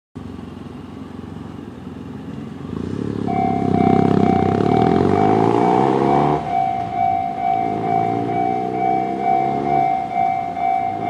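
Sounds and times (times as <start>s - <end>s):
motorcycle accelerating: 0.2s - 11.0s
level crossing warning bell: 3.3s - 11.0s.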